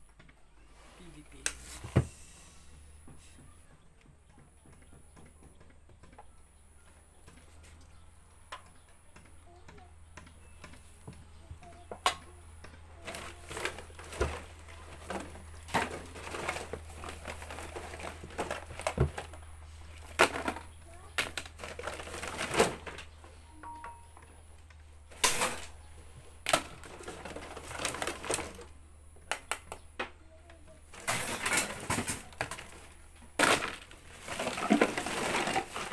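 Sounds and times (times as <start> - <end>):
plastic bottles clattering and rustling: 13.0 - 23.3, 24.7 - 28.8, 30.9 - 35.9.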